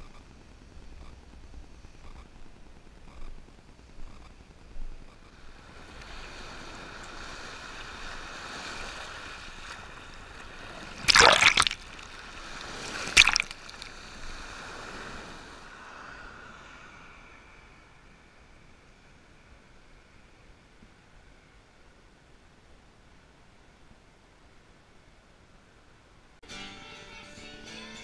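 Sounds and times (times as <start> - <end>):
waves splashing: 5.3 - 17.2
rush of water: 5.5 - 16.4.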